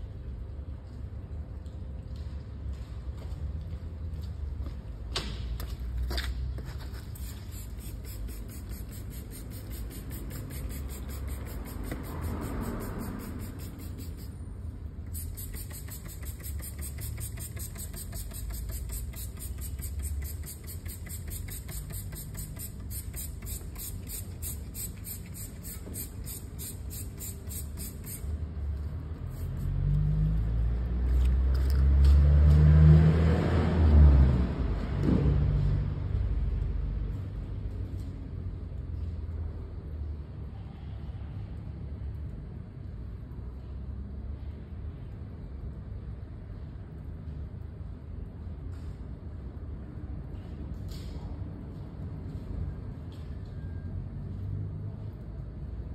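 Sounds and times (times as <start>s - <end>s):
vehicle engine rumble: 0.0s - 40.6s.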